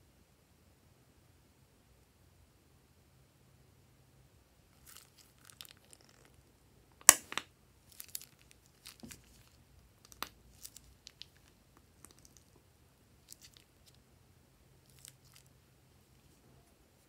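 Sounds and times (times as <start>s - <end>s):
plastic bag crinkling: 4.8s - 6.3s, 7.9s - 12.5s.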